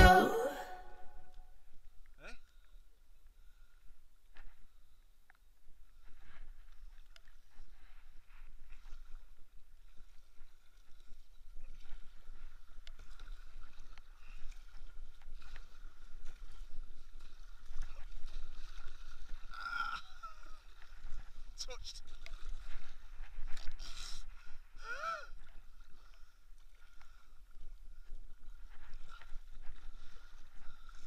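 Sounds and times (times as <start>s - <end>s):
paddle splashing in water: 7.2s - 24.6s.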